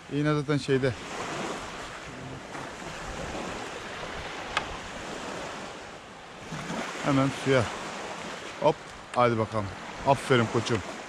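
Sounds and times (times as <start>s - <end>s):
waves washing onto pebbles: 0.8s - 11.0s
wind on microphone: 1.0s - 7.0s.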